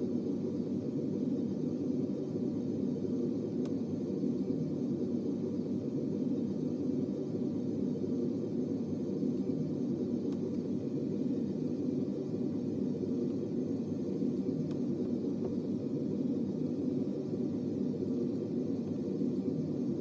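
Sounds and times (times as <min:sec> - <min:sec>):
faint clicks: 0:10.2 - 0:10.7.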